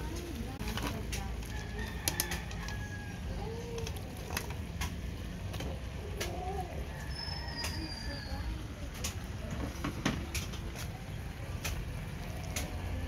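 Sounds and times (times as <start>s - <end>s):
bird calling: 6.2s - 8.6s.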